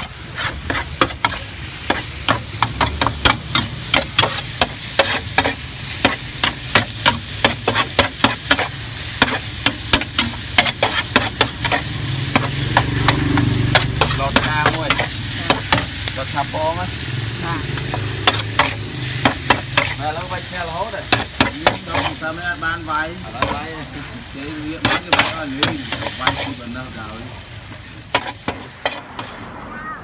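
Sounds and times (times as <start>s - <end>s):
food sizzling: 0.0s - 29.6s
metal spatula clacking on griddle: 0.6s - 16.0s, 17.8s - 20.0s, 21.1s - 22.2s, 24.8s - 26.6s.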